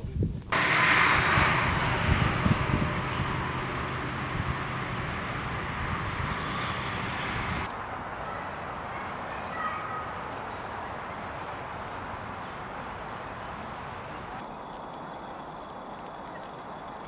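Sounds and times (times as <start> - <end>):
wind rumbling on microphone: 0.0 - 17.0
faint bird chirps: 4.8 - 17.0.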